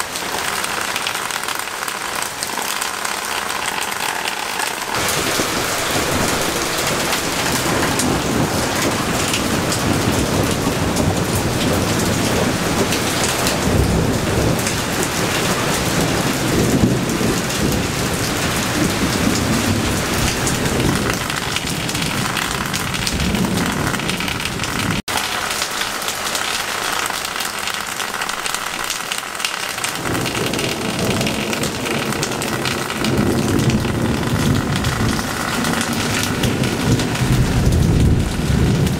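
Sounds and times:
heavy rain on foliage and paving: 0.0 - 38.9
low rolling thunder: 4.9 - 25.0, 30.0 - 38.9.

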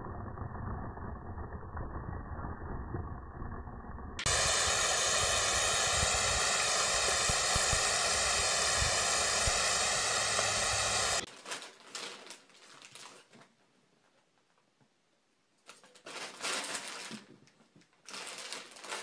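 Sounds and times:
water spray hissing: 4.2 - 11.3.

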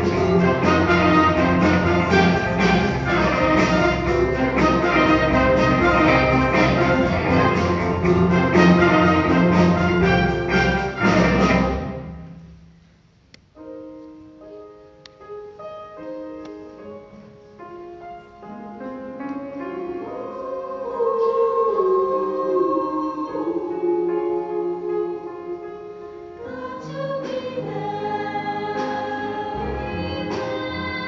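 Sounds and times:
voices singing: 0.0 - 10.2, 19.8 - 25.3, 26.4 - 31.0
loud accompanied music: 0.0 - 12.4
slow piano notes: 0.0 - 31.0.

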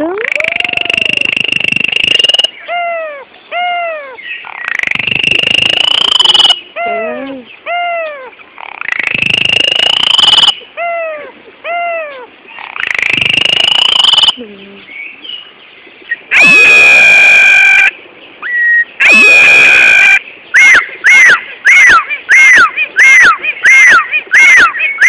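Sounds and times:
starling screeching and whistling: 16.4 - 17.9, 18.5 - 25.0.

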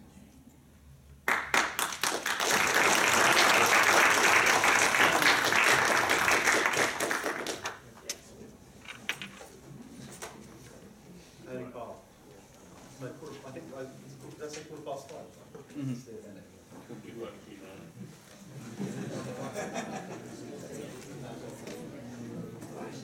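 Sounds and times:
audience applauding: 1.3 - 7.9.

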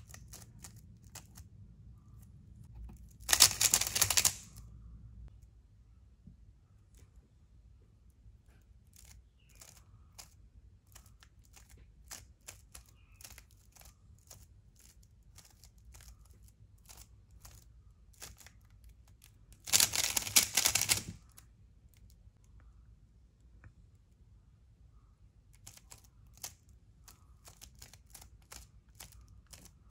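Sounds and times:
puzzle cube clicking: 0.0 - 1.5, 2.9 - 4.6, 8.9 - 21.5, 25.6 - 29.9
rapid clatter of cube turns: 0.0 - 2.1, 2.7 - 4.7, 8.8 - 21.5, 25.5 - 29.9.

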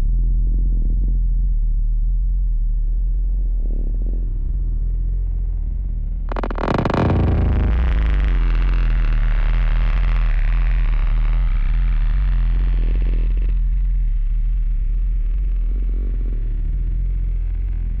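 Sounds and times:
electronic music with low drone: 6.2 - 14.2.

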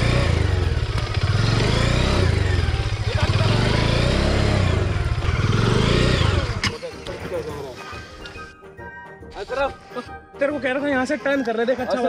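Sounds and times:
motorcycle engine revving: 0.0 - 7.1.

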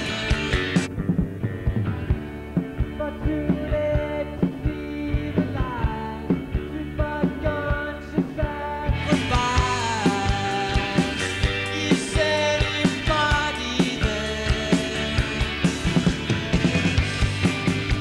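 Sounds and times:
person singing: 0.0 - 0.9, 2.8 - 15.8
rock band playing: 0.0 - 18.0.

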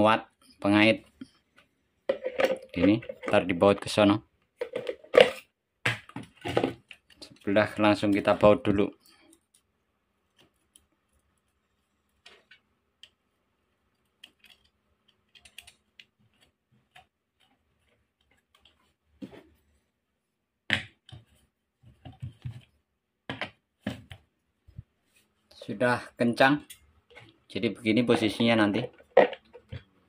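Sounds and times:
socket wrench knocks and scrapes: 2.1 - 3.4.

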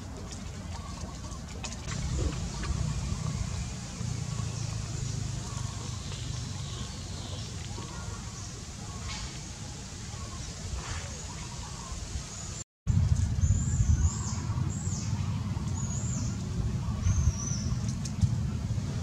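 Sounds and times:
low rumble: 1.8 - 7.5, 12.9 - 19.0.

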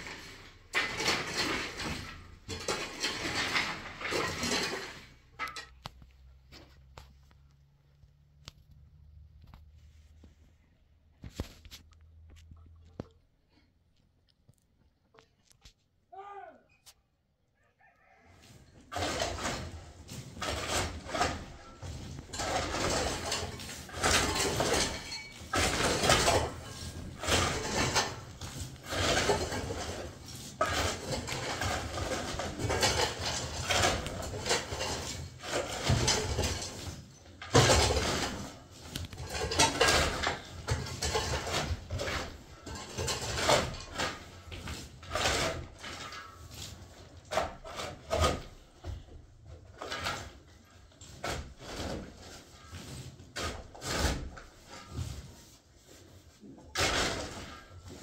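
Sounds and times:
shovel scraping soil: 18.8 - 48.7, 49.8 - 58.0.

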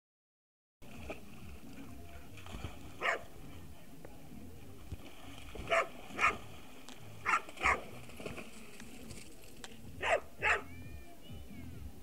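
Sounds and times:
dog barking: 3.0 - 3.3, 5.7 - 6.4, 7.2 - 7.9, 10.0 - 10.7.

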